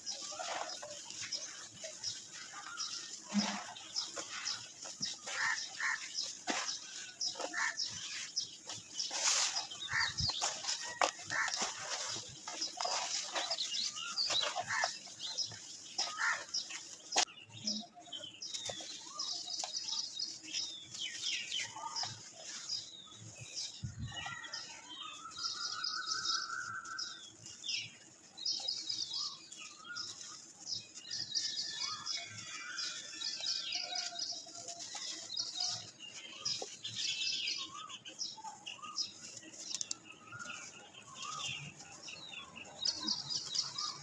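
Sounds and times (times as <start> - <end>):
dry dirt crunching in hands: 0.0 - 17.8
birds chirping: 0.0 - 44.0.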